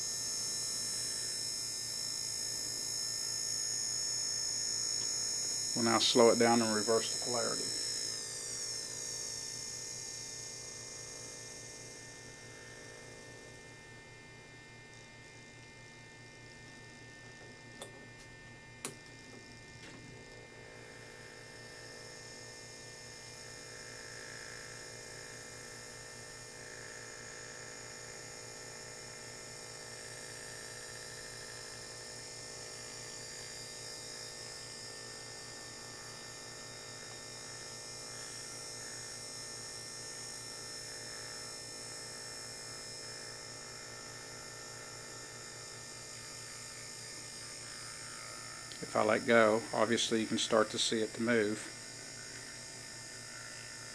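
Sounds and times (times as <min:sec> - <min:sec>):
small motor whining: 0:00.0 - 0:13.7, 0:32.6 - 0:53.9.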